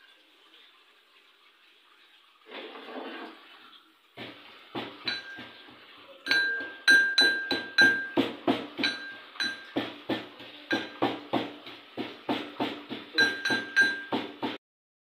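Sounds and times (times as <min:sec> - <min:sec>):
pestle pounding in metal mortar: 0:04.2 - 0:05.7, 0:06.3 - 0:14.6.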